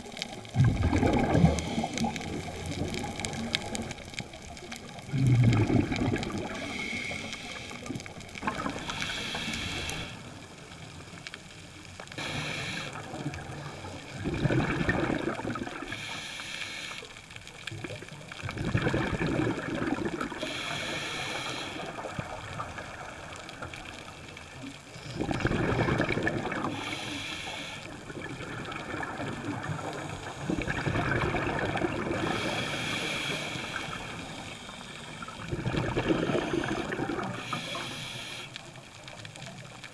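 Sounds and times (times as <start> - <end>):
exhaled air bubbling underwater: 0.0 - 39.9
regulator hiss on inhalation: 6.4 - 10.4, 12.1 - 14.1, 15.8 - 17.3, 20.3 - 22.3, 26.6 - 28.0, 32.2 - 35.4, 36.2 - 38.8.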